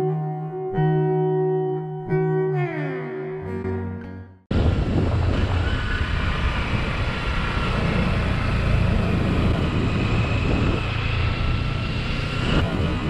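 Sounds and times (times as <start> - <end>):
motorcycle engine running: 4.5 - 13.0
wind rushing over microphone: 4.5 - 13.0.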